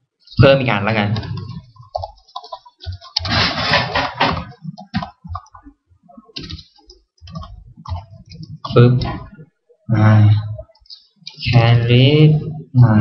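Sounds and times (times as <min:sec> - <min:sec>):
computer keyboard typing: 0:01.1 - 0:09.3.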